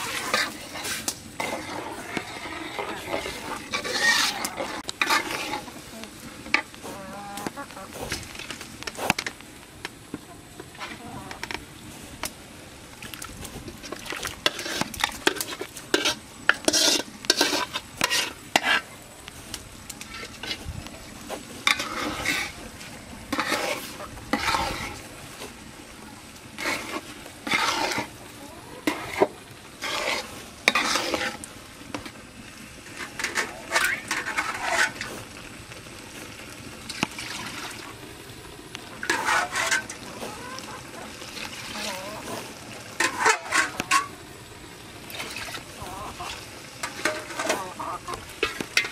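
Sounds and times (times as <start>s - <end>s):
metal spatula scraping pot: 0.0s - 9.3s, 13.7s - 19.0s, 20.0s - 20.7s, 21.3s - 22.6s, 23.3s - 25.1s, 26.6s - 28.2s, 28.8s - 32.1s, 32.8s - 35.3s, 39.0s - 44.2s, 45.2s - 48.9s
food sizzling: 0.0s - 48.9s.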